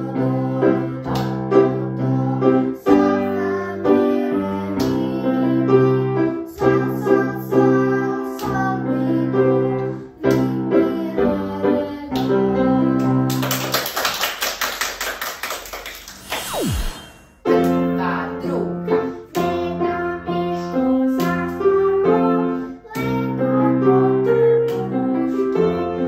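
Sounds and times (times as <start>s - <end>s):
girl singing: 0.0s - 13.2s, 17.6s - 26.0s
piano accompaniment: 0.0s - 13.9s, 17.4s - 26.0s
people clapping: 13.0s - 16.4s.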